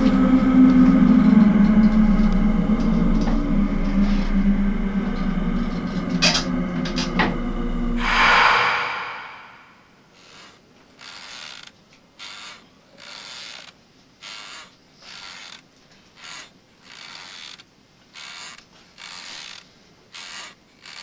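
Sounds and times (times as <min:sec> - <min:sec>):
loud low drone: 0:02.0 - 0:09.9.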